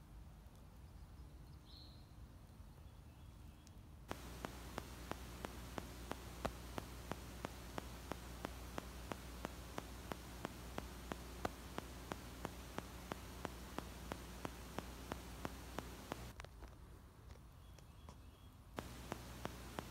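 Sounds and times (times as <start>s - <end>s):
low hum and hiss: 0.0s - 19.9s
regular ticking clicks: 4.1s - 16.3s, 18.8s - 19.9s.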